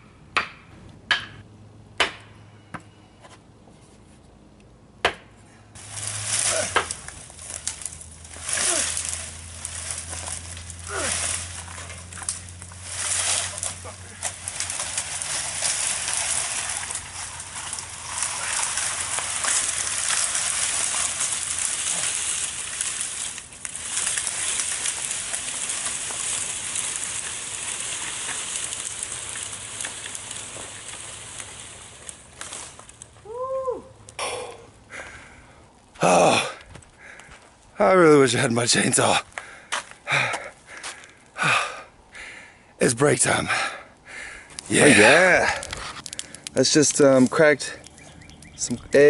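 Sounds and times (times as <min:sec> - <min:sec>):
fire crackling: 0:05.7 - 0:49.0
fire rushing hiss: 0:05.8 - 0:33.1.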